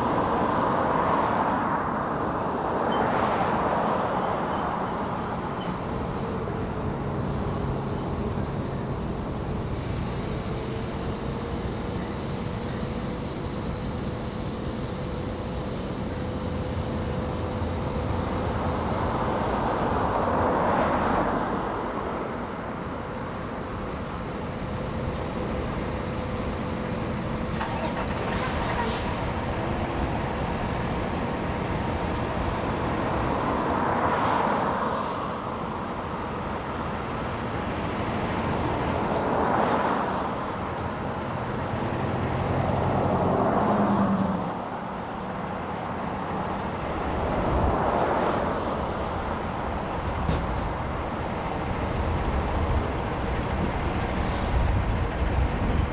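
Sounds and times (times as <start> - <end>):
fire engine diesel running: 22.8 - 33.3, 48.7 - 55.9
cars passing: 25.4 - 55.9.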